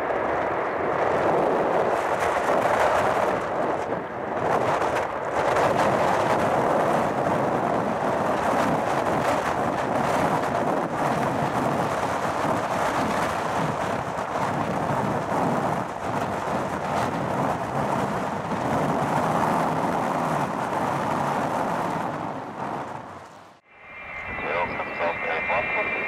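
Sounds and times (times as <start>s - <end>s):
jet engines roaring: 18.6s - 26.0s.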